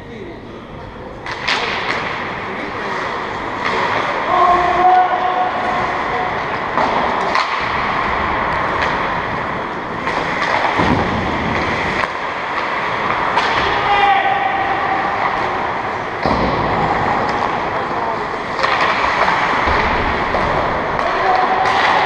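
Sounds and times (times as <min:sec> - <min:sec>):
hall noise: 0:00.0 - 0:22.0
rush of skates: 0:01.2 - 0:22.0
sticks and puck knocking: 0:06.6 - 0:17.7, 0:18.5 - 0:22.0
person shouting: 0:13.6 - 0:14.8.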